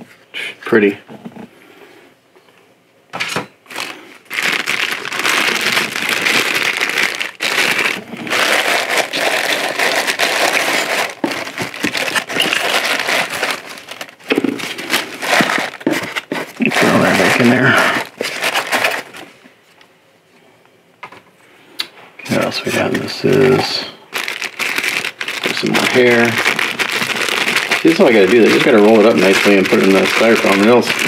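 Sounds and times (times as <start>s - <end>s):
plastic bags crinkling: 3.7s - 19.3s, 22.3s - 31.0s.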